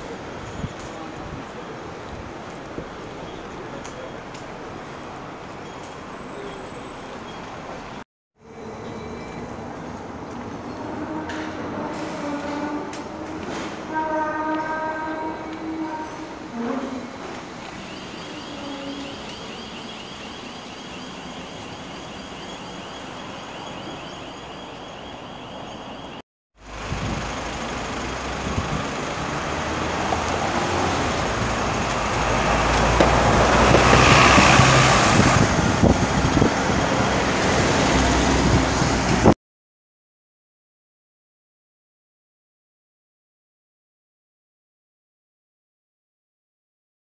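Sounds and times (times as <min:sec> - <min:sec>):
vehicles passing close by: 0:16.6 - 0:39.4.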